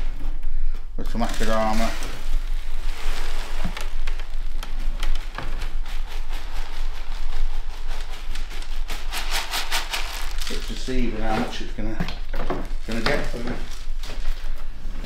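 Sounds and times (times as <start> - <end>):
clay soil grains pouring: 1.0 - 11.6.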